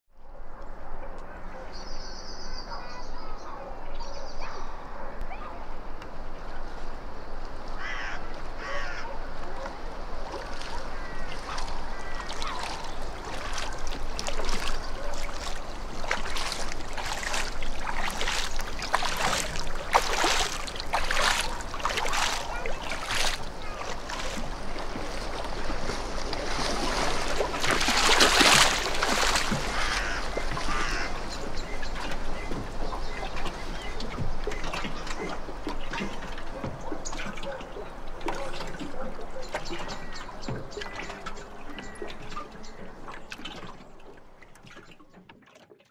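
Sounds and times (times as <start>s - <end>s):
paddle splashing in water: 6.1s - 45.9s
waterfowl calling: 7.8s - 44.2s.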